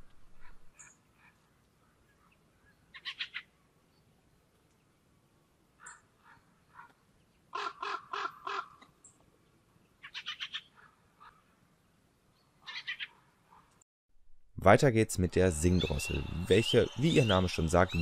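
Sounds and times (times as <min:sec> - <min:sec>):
bird harsh chattering call: 0:02.9 - 0:03.4.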